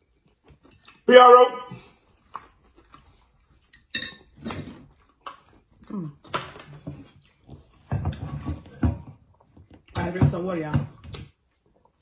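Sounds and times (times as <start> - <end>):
utensils clinking on plates: 3.8 - 4.7.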